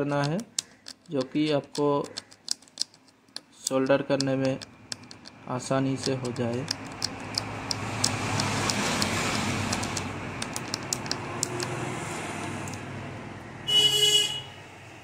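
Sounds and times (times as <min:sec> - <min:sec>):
background traffic: 0:00.0 - 0:15.0
razor blade scraping clicks: 0:00.2 - 0:05.4, 0:06.0 - 0:11.8.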